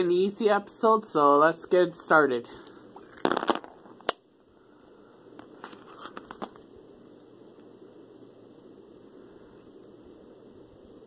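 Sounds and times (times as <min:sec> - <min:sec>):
packaging crinkling and tapping: 0:05.4 - 0:07.3.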